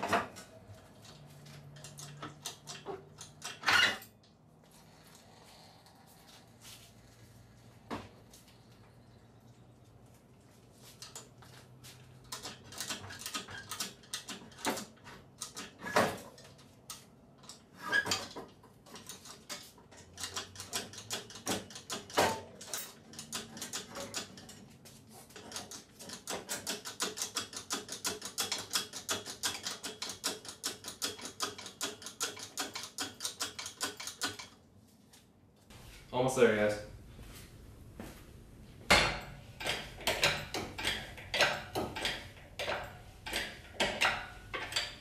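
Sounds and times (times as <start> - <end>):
metal clanks and knocks: 0.0 - 4.2, 17.4 - 24.7, 25.3 - 34.6, 38.8 - 45.0.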